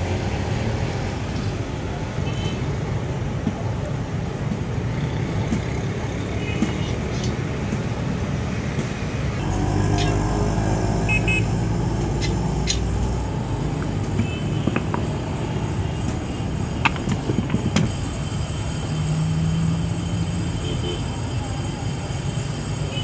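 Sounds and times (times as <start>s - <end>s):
passing vehicles hum: 0.0s - 23.0s
metal clicks and knocks: 13.8s - 15.3s, 16.8s - 17.9s.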